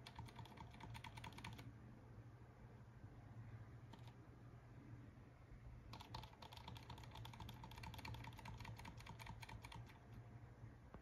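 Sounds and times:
keyboard keys clicking: 0.0 - 1.6, 3.9 - 4.2, 5.9 - 10.0
low steady hum: 0.0 - 11.0.

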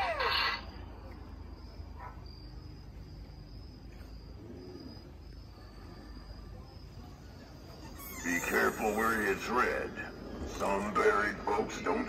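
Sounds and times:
crickets chirping: 0.0 - 12.0
low background rumble: 8.5 - 12.0.

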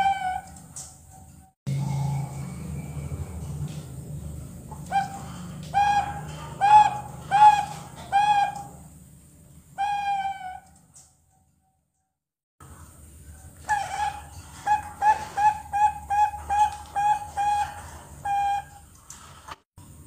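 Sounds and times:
doves cooing: 4.4 - 9.0, 13.6 - 18.9.

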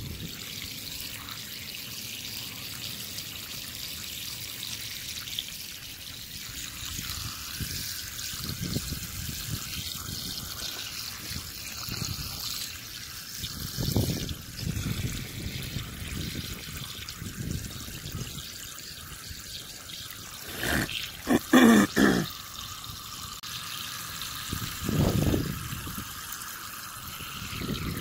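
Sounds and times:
hose water splashing on ground: 0.0 - 28.0.

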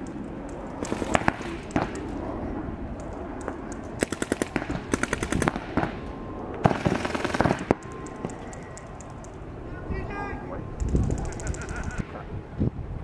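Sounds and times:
paintball markers firing rapidly: 0.0 - 2.2, 3.0 - 5.9, 6.6 - 9.4, 10.8 - 12.0.

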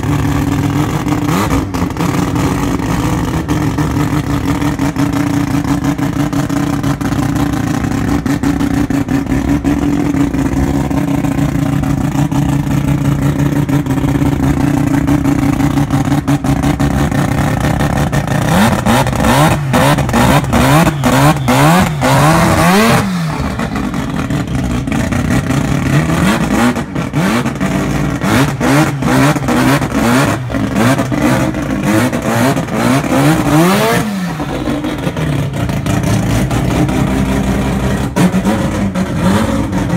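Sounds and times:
car engine idling and revving: 0.0 - 39.9.

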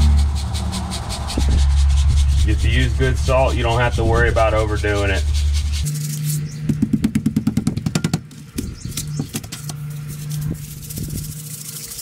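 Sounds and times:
low hum: 0.0 - 12.0
salt shaken from container: 9.9 - 12.0.

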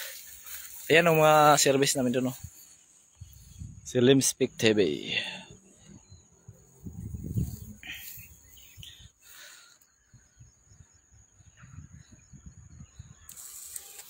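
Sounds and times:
footsteps through tall grass: 0.0 - 3.5, 6.8 - 8.6
insects buzzing: 0.0 - 14.0.

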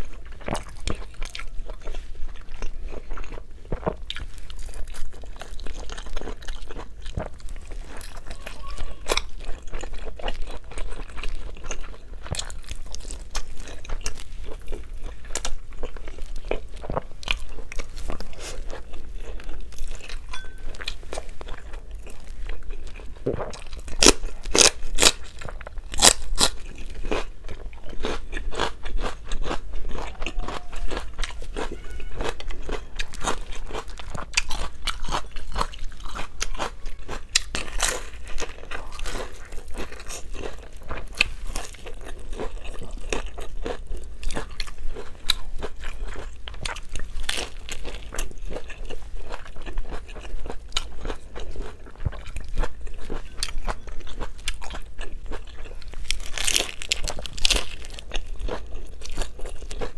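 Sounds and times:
crunchy bites and chewing: 0.0 - 59.9.

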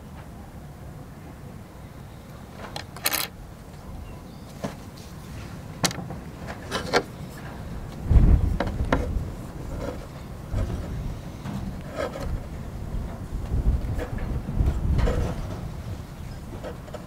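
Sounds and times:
low bump and rumble: 7.8 - 17.0.

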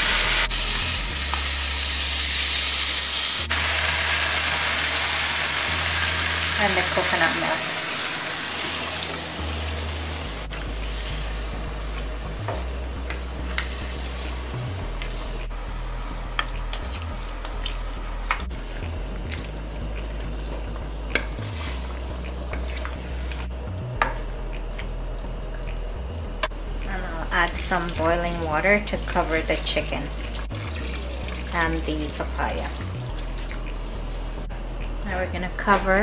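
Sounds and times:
curry sizzling in a wok: 0.0 - 24.2.

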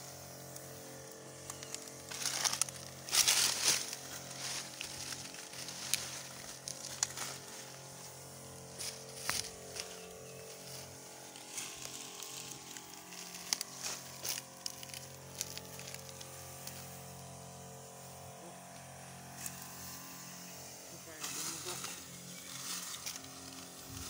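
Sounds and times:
spray hissing: 0.0 - 24.0
sprayer pump humming: 0.0 - 24.0
dry leaves crackling: 0.5 - 17.2, 21.0 - 24.0.

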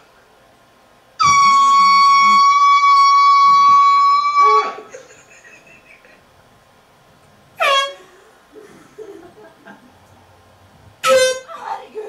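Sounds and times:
air horn blast: 1.2 - 4.9, 7.6 - 8.1, 11.0 - 11.6.

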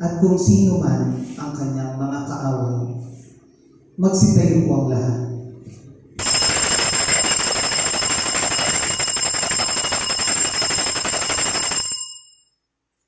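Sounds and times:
bell ringing continuously: 6.2 - 12.7.

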